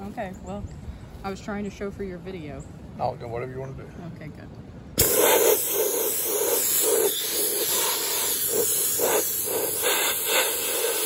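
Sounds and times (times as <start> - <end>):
media blaster loud hiss: 5.0 - 11.0.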